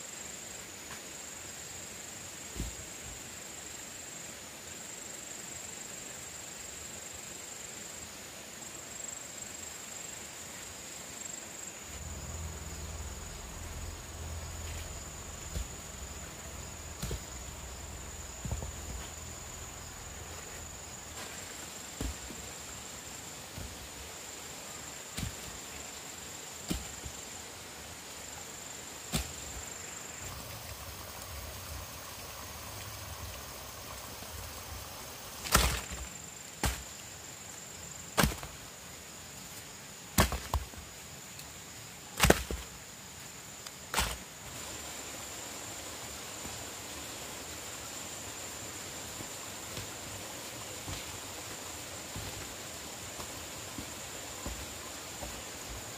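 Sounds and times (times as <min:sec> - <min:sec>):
high-pitched whine: 0:11.9 - 0:20.8
blade chopping into wood: 0:38.2 - 0:38.5, 0:42.2 - 0:42.6.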